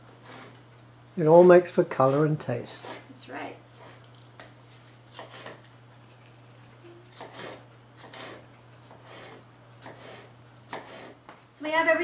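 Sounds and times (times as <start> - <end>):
knife slicing on cutting board: 7.1 - 11.2.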